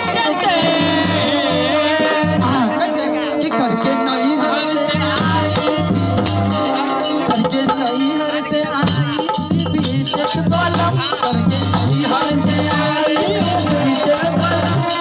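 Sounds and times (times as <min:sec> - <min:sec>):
folk music through sound system: 0:00.0 - 0:15.0
hand drum beat: 0:08.8 - 0:15.0.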